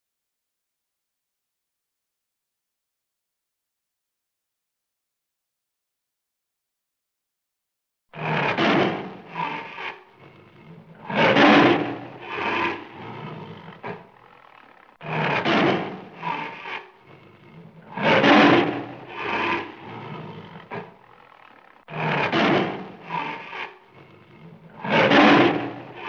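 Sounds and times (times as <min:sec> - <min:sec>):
tiger roaring: 0:08.1 - 0:26.0.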